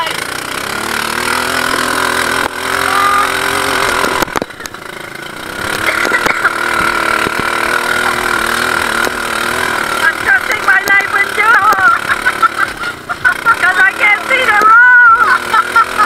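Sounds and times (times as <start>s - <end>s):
buggy engine running: 0.0s - 16.0s.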